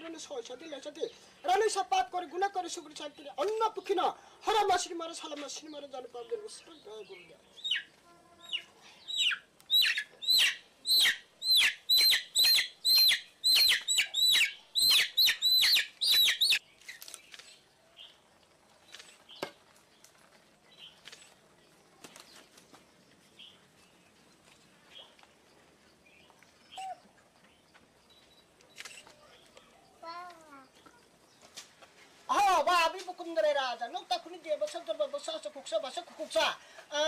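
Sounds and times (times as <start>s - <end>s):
chicken squawking: 7.6s - 16.6s.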